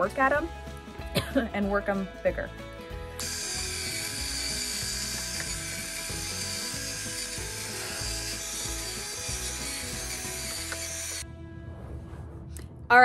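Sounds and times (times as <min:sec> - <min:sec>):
music: 0:00.0 - 0:13.0
rotary tool grinding wood: 0:03.2 - 0:11.2.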